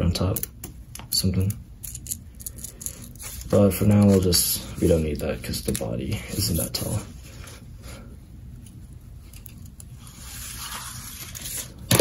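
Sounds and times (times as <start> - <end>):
paper rustling: 3.1 - 7.6, 10.0 - 12.0.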